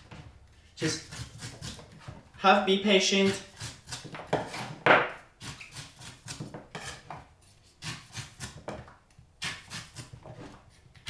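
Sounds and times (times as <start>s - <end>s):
knife scraping coconut husk: 0.8s - 2.2s, 3.2s - 4.8s, 5.4s - 8.7s, 9.4s - 10.6s.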